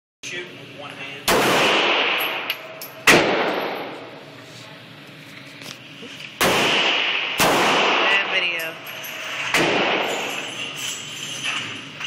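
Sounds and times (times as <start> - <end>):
handgun shots with echo: 1.3 - 4.0, 6.4 - 8.3, 9.5 - 10.4.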